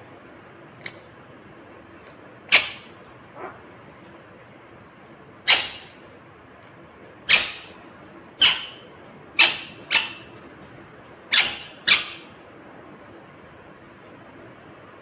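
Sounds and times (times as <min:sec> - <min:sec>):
parakeet squawking: 0:05.5 - 0:06.0, 0:07.3 - 0:08.8, 0:09.4 - 0:10.3, 0:11.3 - 0:12.4.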